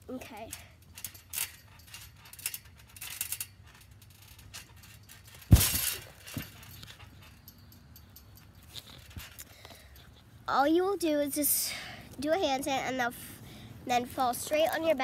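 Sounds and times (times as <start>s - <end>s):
clinking rattle: 0.5s - 10.2s
body thumping onto trampoline: 5.3s - 6.7s.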